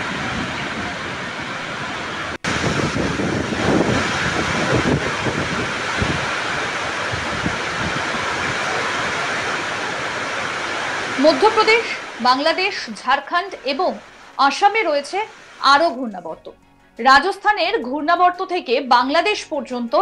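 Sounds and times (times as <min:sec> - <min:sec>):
wind buffeting microphone: 0:00.0 - 0:13.0
rain rushing: 0:00.0 - 0:16.4.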